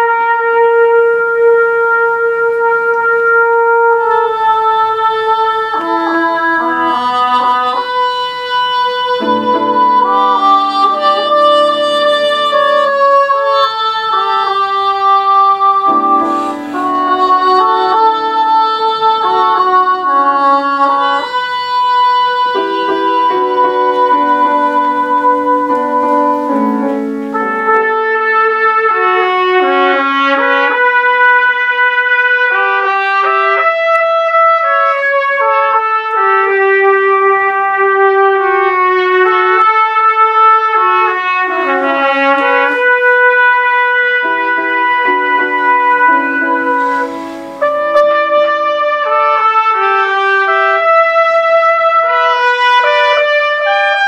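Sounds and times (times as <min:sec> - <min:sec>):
piano accompaniment: 0:00.0 - 0:54.0
trumpets playing in harmony: 0:00.0 - 0:54.0.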